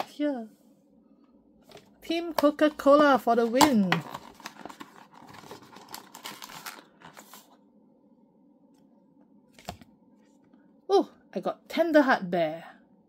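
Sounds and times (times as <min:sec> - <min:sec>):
plastic packaging crinkling and tearing: 0:03.5 - 0:07.5.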